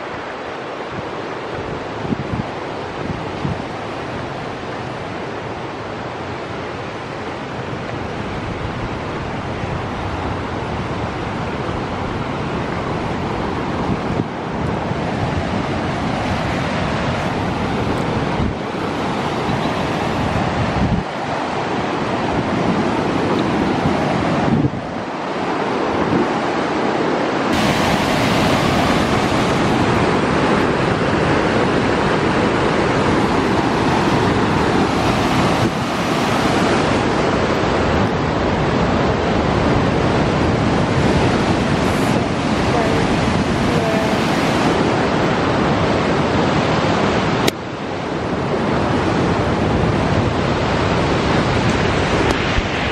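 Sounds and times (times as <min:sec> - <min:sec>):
rapids rushing over rock: 0:13.6 - 0:37.9.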